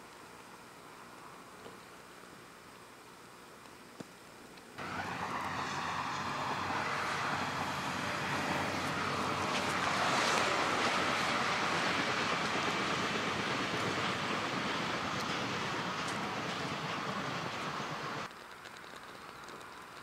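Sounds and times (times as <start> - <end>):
steady rushing noise: 4.8 - 18.4.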